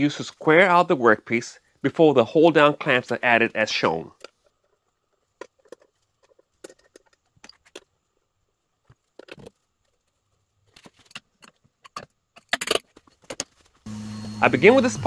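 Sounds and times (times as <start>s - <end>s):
metal clamps and wrench clinking: 11.4s - 13.5s.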